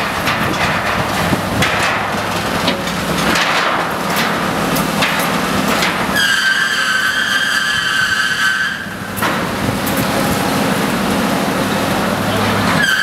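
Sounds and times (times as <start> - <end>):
excavator engine running: 0.0 - 7.0, 8.8 - 13.0
demolition clatter: 0.0 - 7.3
high-pitched squeal: 6.1 - 9.1, 12.8 - 13.0.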